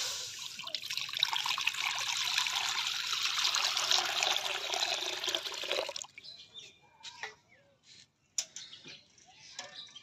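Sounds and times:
water pouring into metal pan: 0:00.0 - 0:06.1.

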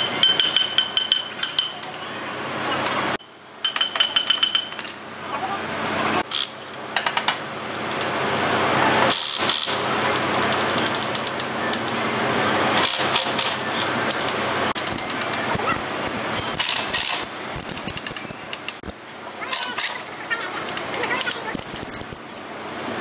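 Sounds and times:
impact wrench hammering: 0:00.0 - 0:01.9, 0:12.8 - 0:15.2.

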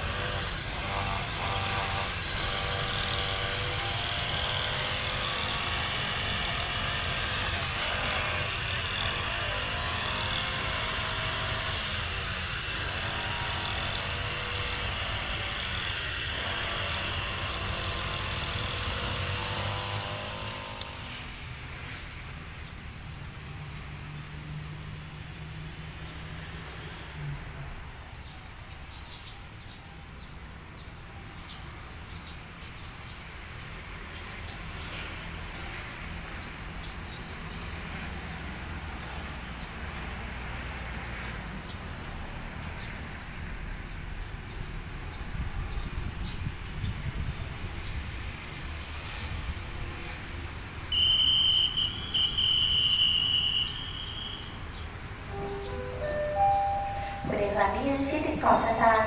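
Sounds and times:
diesel locomotive engine rumbling: 0:49.4 - 0:59.0.

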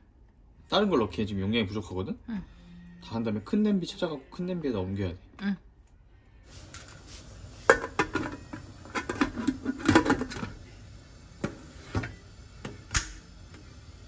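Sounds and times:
pots and utensils clattering: 0:06.6 - 0:10.6, 0:11.4 - 0:12.8.

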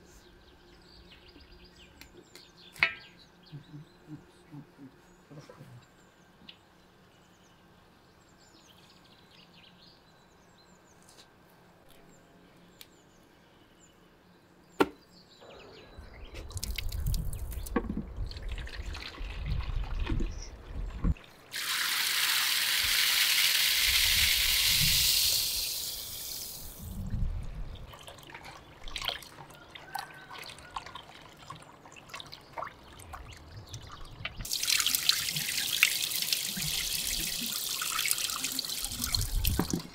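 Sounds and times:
tap water splashing into plastic bowl: 0:39.1 - 0:39.9.

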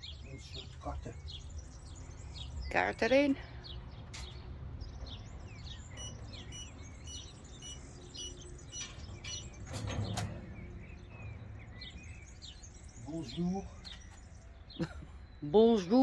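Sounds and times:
birds chirping: 0:00.0 - 0:16.0
payment terminal short high beeps: 0:06.0 - 0:08.4.

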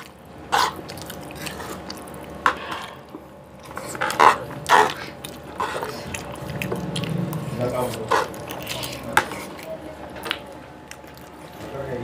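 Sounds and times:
cutlery scraping a serving tray: 0:07.8 - 0:09.6.

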